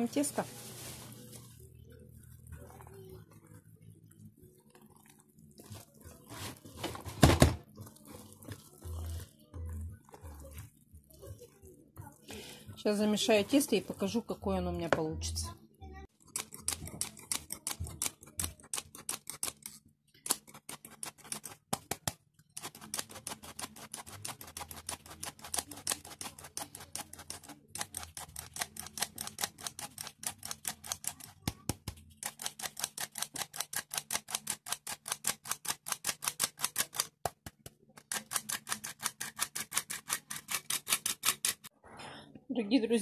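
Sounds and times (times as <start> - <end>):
whisk clicking against bowl: 20.3 - 41.7.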